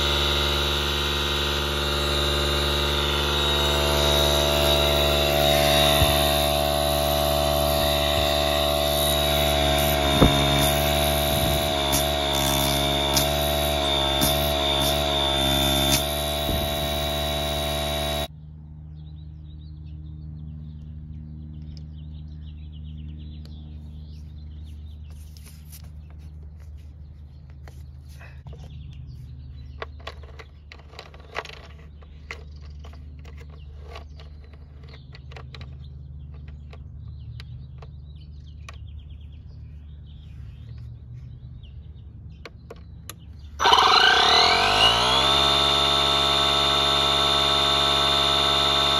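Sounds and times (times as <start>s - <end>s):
tire inflator compressor whining: 0.0s - 18.4s, 42.4s - 48.9s.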